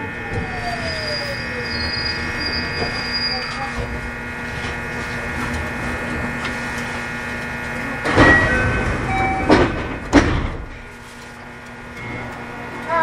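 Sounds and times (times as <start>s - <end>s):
electrical hum: 0.0s - 13.0s
train car rumble: 0.0s - 13.0s.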